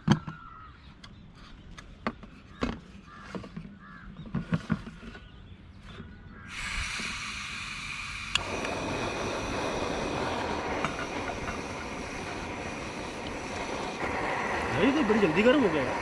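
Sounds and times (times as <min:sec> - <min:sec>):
gas burner rushing: 0:06.4 - 0:16.0
gas hissing from valve: 0:06.4 - 0:16.0.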